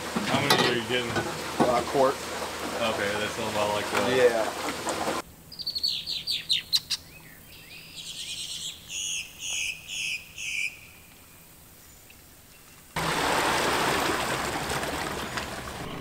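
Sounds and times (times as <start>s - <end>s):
bird chirping: 5.5s - 13.0s.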